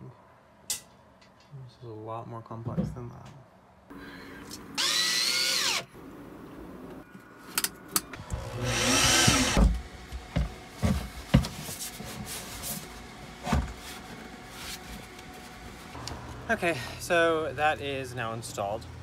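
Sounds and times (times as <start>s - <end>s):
cordless drill motor whirring: 4.8s - 5.9s, 8.2s - 9.6s.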